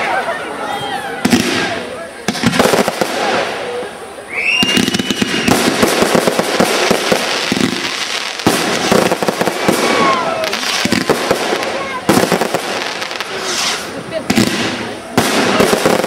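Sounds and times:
rising firework whistle: 4.3 - 16.0
firework shells bursting: 4.4 - 16.0.

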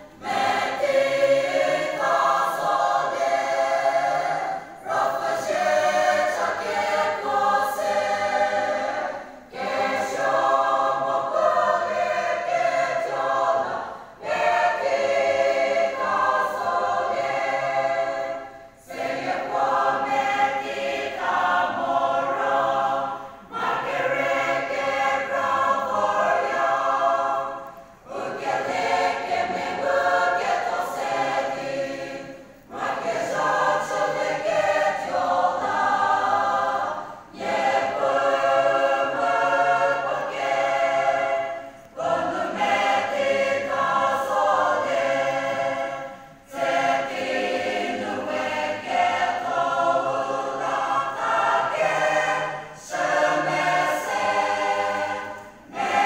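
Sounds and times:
church choir singing: 0.0 - 56.0.

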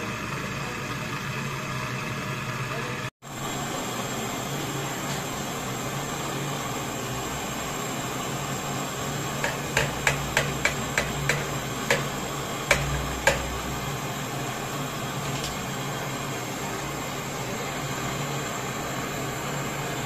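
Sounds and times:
torch flame hissing: 0.0 - 20.0
sharp clicks or taps: 9.4 - 13.6.

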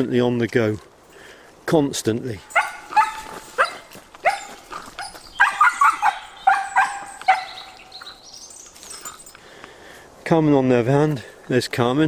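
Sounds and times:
dog yelping: 2.5 - 8.2.

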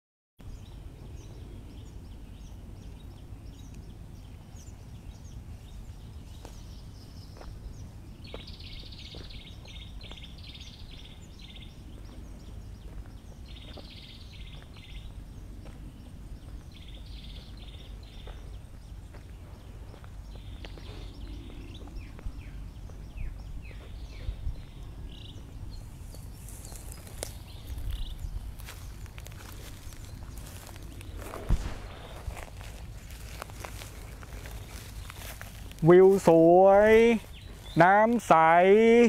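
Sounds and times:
low rumble: 20.2 - 35.8.

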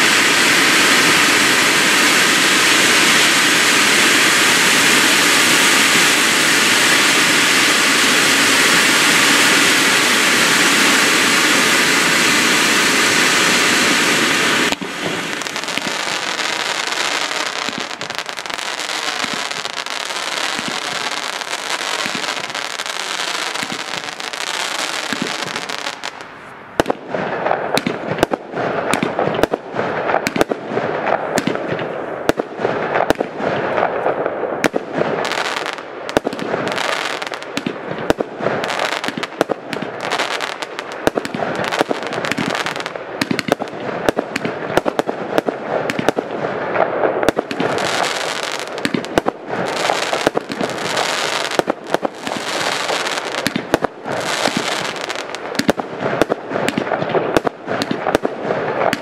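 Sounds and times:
fireworks hiss and crackle: 0.0 - 59.0
fireworks launching and bursting: 0.0 - 59.0.

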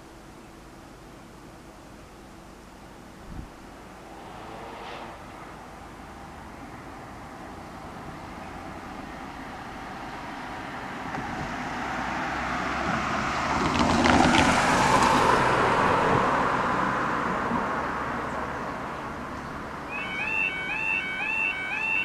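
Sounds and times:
car driving past: 3.8 - 8.8.

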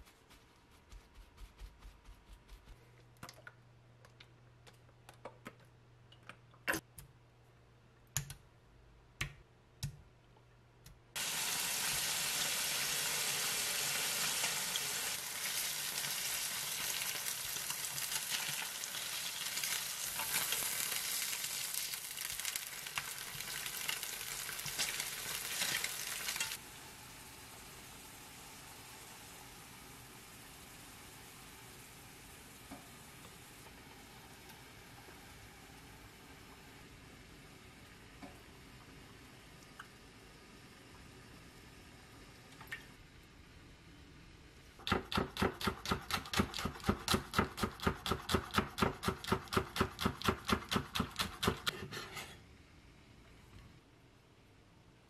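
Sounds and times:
tofu sizzling in frying pan: 11.2 - 34.4.

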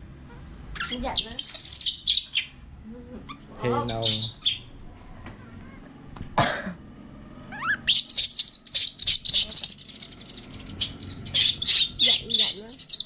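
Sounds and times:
monkey chirps and shrill squeals: 0.7 - 2.6, 3.3 - 4.7, 7.5 - 13.0
baby monkey crying: 0.8 - 2.5, 3.3 - 4.7, 7.5 - 13.0.

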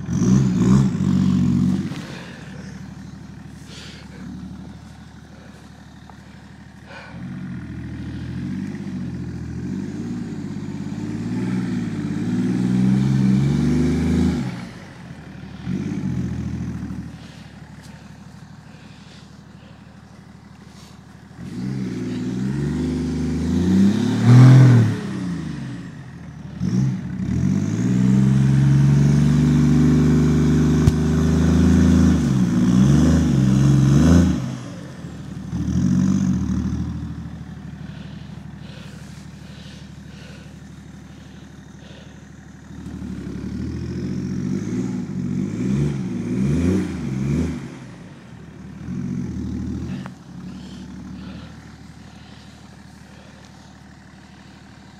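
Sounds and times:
wheels throwing snow: 0.0 - 7.2, 13.6 - 23.2, 35.2 - 43.7
diesel car engine revving: 0.0 - 54.9.

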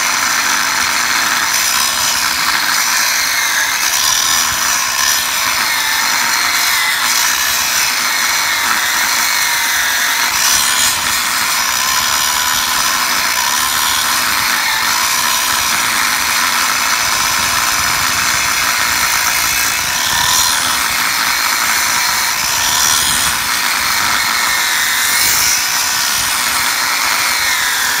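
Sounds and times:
angle grinder cutting steel: 0.0 - 28.0.

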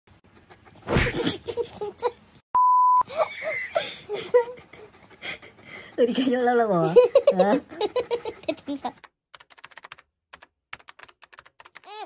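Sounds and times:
censor bleep tone: 2.6 - 3.0.

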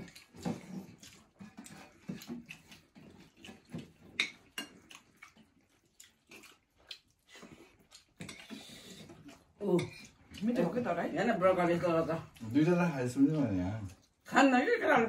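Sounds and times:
wet mixing and chewing: 0.0 - 15.0.

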